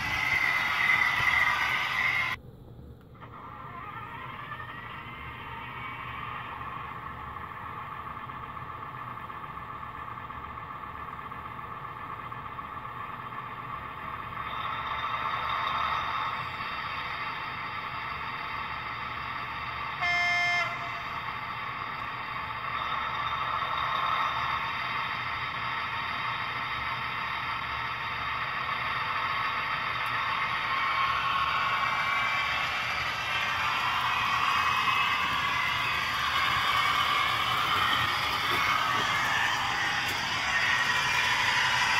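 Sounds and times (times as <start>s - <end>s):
model train engine sound: 0.0s - 2.4s, 3.0s - 41.9s
short train horn blast: 20.0s - 21.2s.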